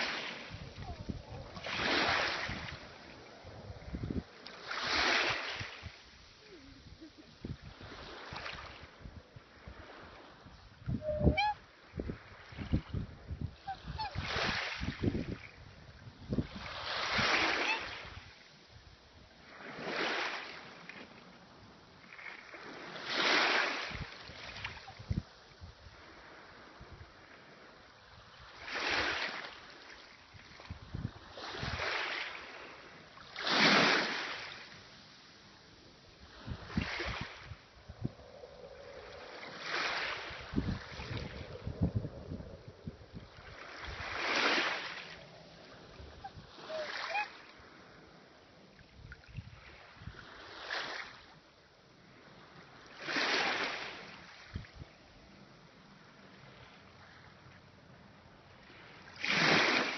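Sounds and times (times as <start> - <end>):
small waves washing over shallows: 0.0 - 59.9
wind bumps on microphone: 0.1 - 6.1, 6.9 - 18.3, 36.2 - 45.2, 54.4 - 54.9.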